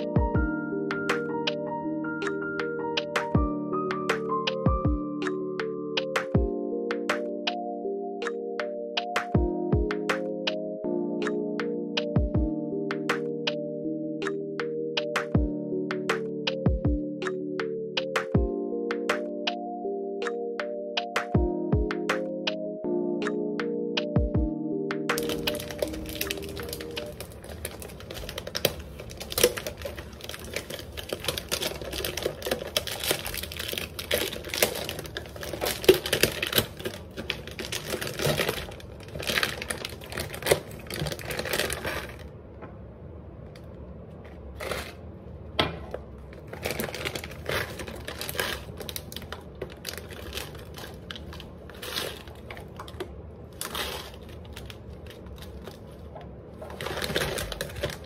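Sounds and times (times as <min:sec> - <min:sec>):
plastic bag crinkling: 0:25.2 - 0:42.3, 0:44.6 - 0:45.0, 0:46.3 - 0:58.0.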